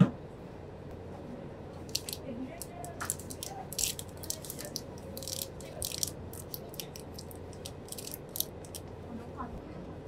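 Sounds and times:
steady low hum: 0:00.0 - 0:10.0
plastic wrapper crinkling: 0:01.9 - 0:08.9.

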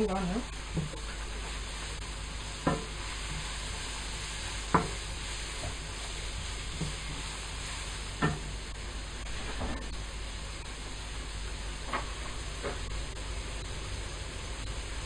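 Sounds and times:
onions sizzling in oil: 0:00.0 - 0:15.0
wooden spatula knocking pan: 0:00.7 - 0:01.1, 0:02.6 - 0:03.5, 0:04.7 - 0:05.8, 0:08.2 - 0:08.5.

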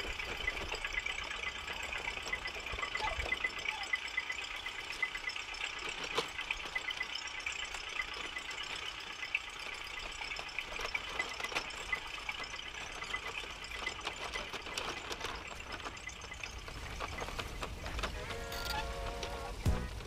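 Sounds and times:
small irregular clicks: 0:00.0 - 0:20.0
toy wheels crunching over sand: 0:00.0 - 0:20.0.

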